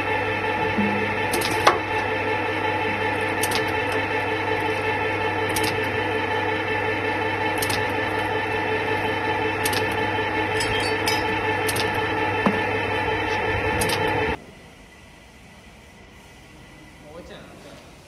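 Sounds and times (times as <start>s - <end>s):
electric motor humming: 0.0s - 14.4s.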